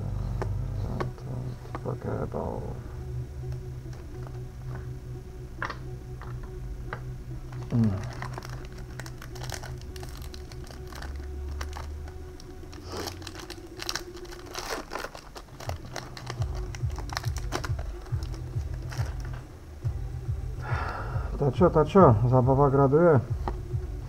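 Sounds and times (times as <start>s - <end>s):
foil wrapper crinkling: 7.5s - 19.4s.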